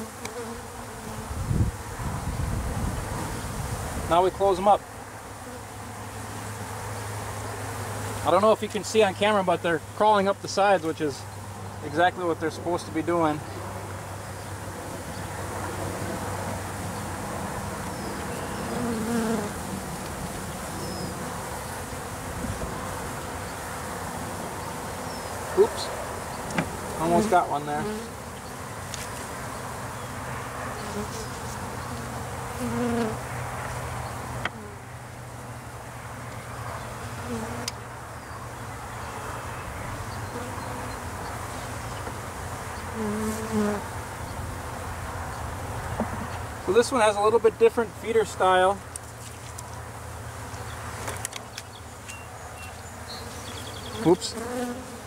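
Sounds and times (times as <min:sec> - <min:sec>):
single bee buzzing loudly: 0:00.0 - 0:04.1, 0:04.8 - 0:08.3, 0:13.4 - 0:33.4, 0:34.0 - 0:34.9, 0:37.0 - 0:37.8, 0:40.2 - 0:42.0, 0:42.7 - 0:44.0, 0:53.1 - 0:55.0
bees buzzing: 0:00.0 - 0:46.8, 0:50.0 - 0:55.0.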